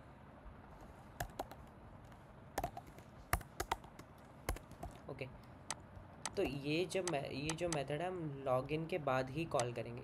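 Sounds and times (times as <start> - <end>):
computer keyboard typing: 1.2 - 1.7, 2.6 - 5.0, 5.7 - 7.9.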